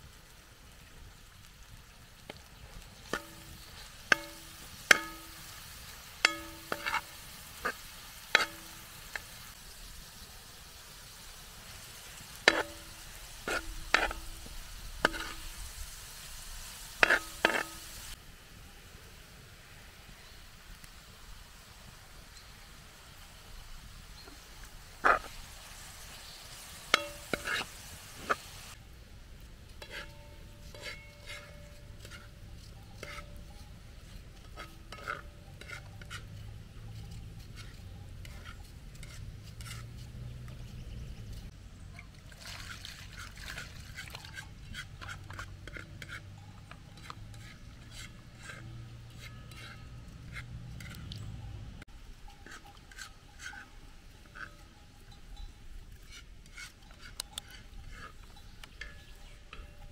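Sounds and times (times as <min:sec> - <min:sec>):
utensil scraping against pot: 0:03.0 - 0:09.6, 0:12.1 - 0:15.6, 0:17.0 - 0:18.2, 0:25.0 - 0:25.4, 0:26.9 - 0:28.5, 0:29.7 - 0:41.5, 0:43.1 - 0:51.4, 0:52.2 - 0:59.9.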